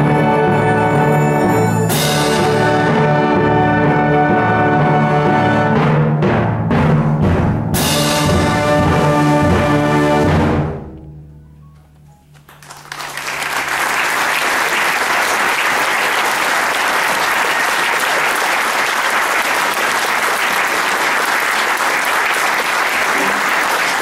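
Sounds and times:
audience applause: 12.4s - 24.0s.

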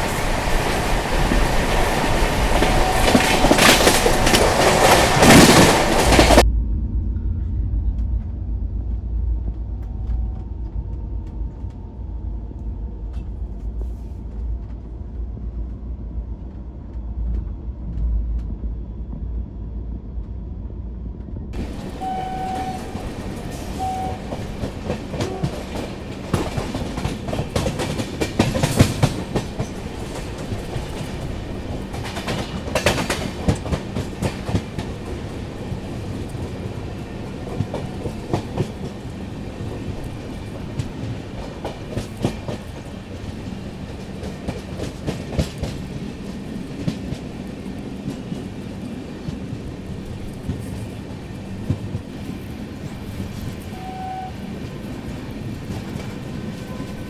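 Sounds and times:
train wheels clattering on rails: 0.0s - 6.4s, 21.1s - 57.0s
low train rumble: 0.0s - 57.0s.

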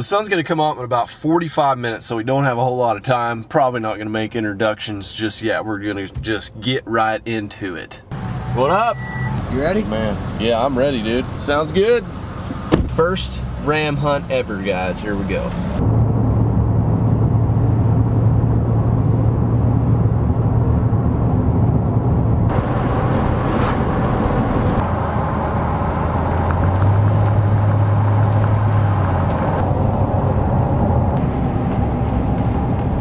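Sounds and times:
road noise inside vehicle: 8.0s - 33.0s
engine drone: 8.1s - 33.0s.

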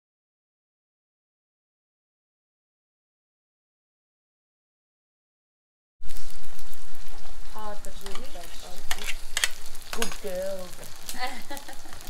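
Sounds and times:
food sizzling in hot oil: 6.0s - 12.0s
spatula scraping metal wok: 8.0s - 11.1s.

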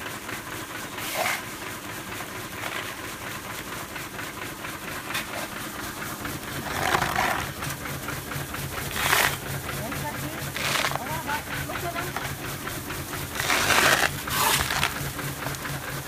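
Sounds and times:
machinery rattling: 0.0s - 16.0s.

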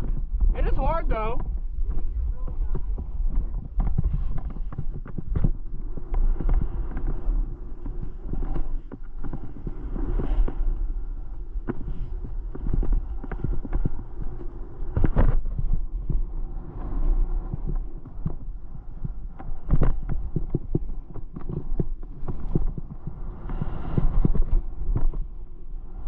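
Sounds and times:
wind rumble on microphone: 0.0s - 26.0s
skis scraping through snow: 0.6s - 18.0s, 18.7s - 26.0s.

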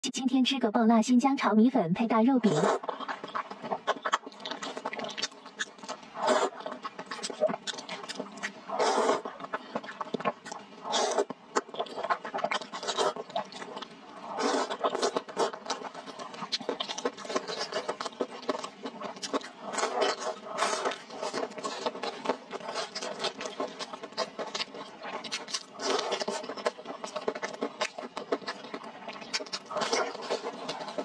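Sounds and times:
chewing and lip-smacking: 2.4s - 31.0s
wet noodle slurps: 2.4s - 31.0s.

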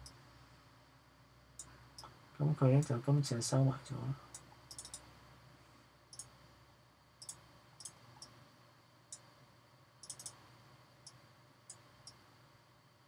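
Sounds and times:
faint room hiss: 0.0s - 13.0s
computer mouse clicking: 4.3s - 5.1s, 6.1s - 6.3s, 7.2s - 8.3s, 10.0s - 10.4s.

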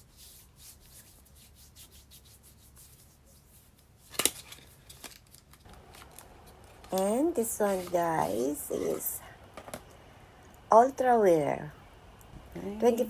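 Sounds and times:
tissue paper rustling: 3.1s - 8.9s.

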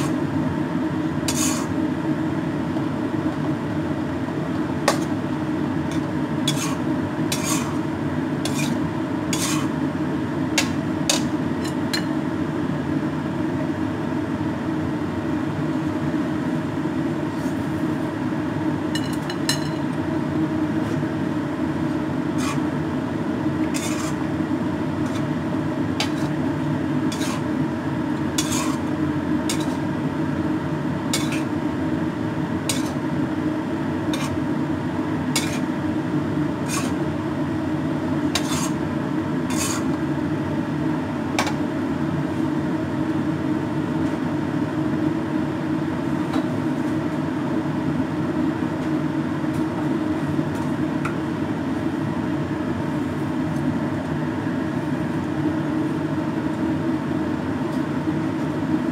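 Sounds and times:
metal spatula scraping wok: 1.3s - 1.7s, 5.9s - 7.8s, 8.4s - 9.8s, 22.3s - 22.7s, 23.7s - 24.2s, 25.0s - 25.3s, 27.1s - 27.5s, 28.4s - 28.9s, 29.5s - 29.9s, 31.2s - 31.6s, 32.7s - 33.0s, 34.2s - 34.4s, 35.4s - 35.7s, 36.6s - 37.0s, 38.4s - 38.8s, 39.5s - 39.9s.

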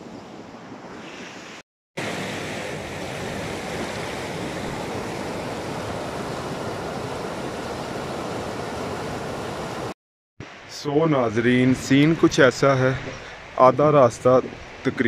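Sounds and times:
river rushing over stones: 2.0s - 9.9s.

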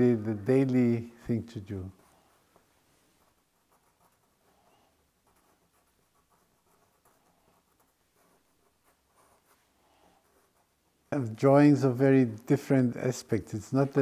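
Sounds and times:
felt-tip pen scratching on paper: 1.8s - 11.0s.

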